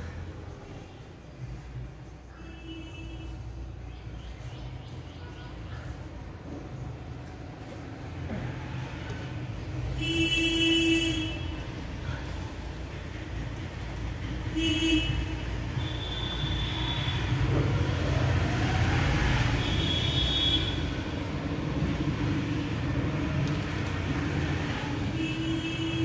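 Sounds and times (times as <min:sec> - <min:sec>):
traffic rumble: 0:00.0 - 0:26.0
vehicle horns tooting: 0:09.9 - 0:11.8, 0:14.5 - 0:17.5, 0:19.6 - 0:21.1, 0:25.1 - 0:26.0.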